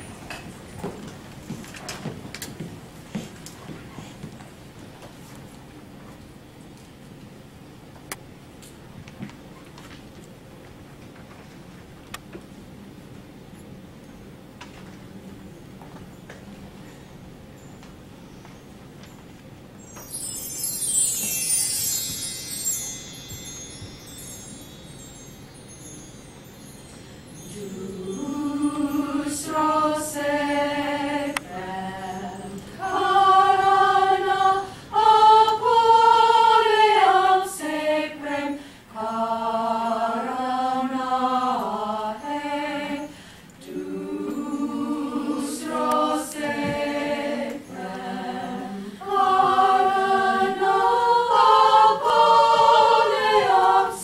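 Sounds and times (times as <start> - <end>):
high ringing: 19.8 - 30.0
women's choir singing: 27.5 - 54.0.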